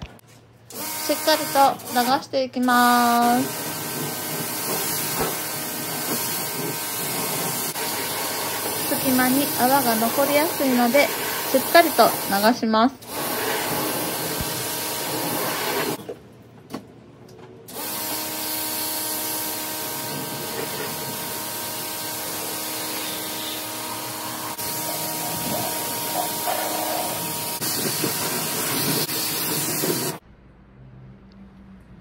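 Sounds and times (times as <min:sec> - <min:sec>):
hose spray on car body: 0:03.0 - 0:12.5, 0:13.1 - 0:16.0, 0:17.8 - 0:30.2.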